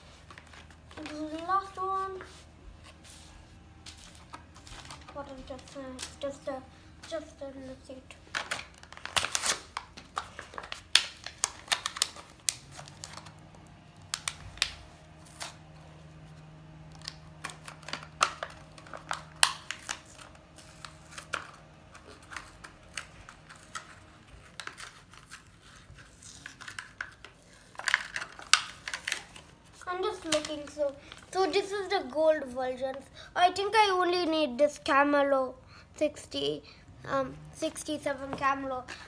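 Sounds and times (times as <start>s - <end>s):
paper and bag crinkling: 0.0s - 16.3s, 17.0s - 31.6s
sharp clicks and crackles: 8.3s - 14.8s.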